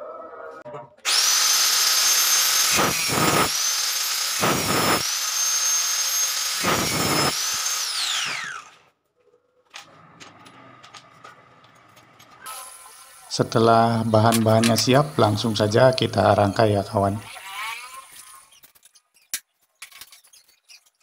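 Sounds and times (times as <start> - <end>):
angle grinder whining: 1.0 - 8.9, 9.8 - 18.7
grinder disc cutting metal rail: 1.1 - 8.9, 12.2 - 19.4.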